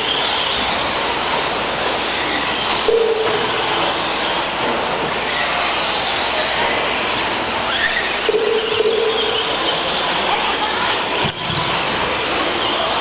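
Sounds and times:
rc truck motors whining: 0.0 - 13.0
held mid-pitched tone: 8.3 - 9.5.

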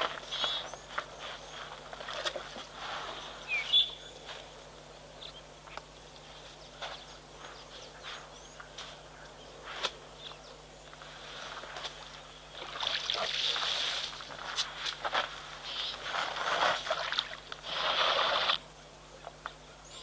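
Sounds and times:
elephant hissing and rustling: 0.0 - 3.5, 17.6 - 18.6.

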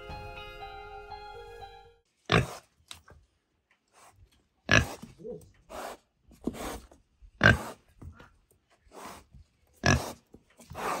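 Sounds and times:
pig grunting: 4.6 - 6.0, 7.4 - 7.8, 9.8 - 11.0.

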